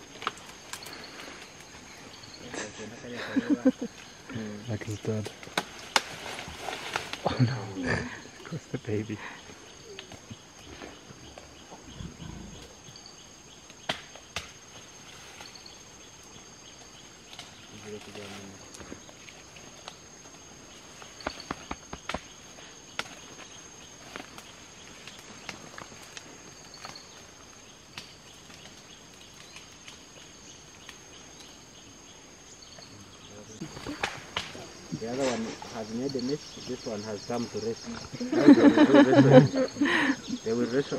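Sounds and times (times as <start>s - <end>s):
forest ambience hiss: 0.0s - 40.9s
insects droning: 0.0s - 40.9s
sharp snaps: 13.7s - 14.6s, 33.8s - 34.6s.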